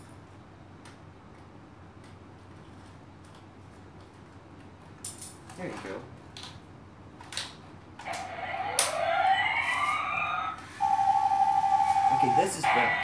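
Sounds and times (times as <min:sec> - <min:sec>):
siren-like rising sweeps: 0:08.2 - 0:13.0
steady high beep: 0:10.8 - 0:12.9.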